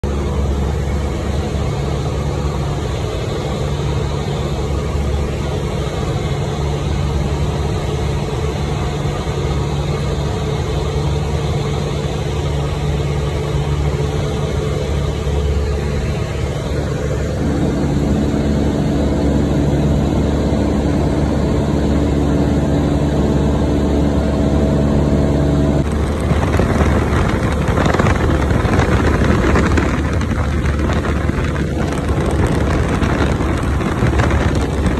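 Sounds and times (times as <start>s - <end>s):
plane engine droning: 0.0s - 34.9s
rushing wind noise: 13.7s - 34.9s.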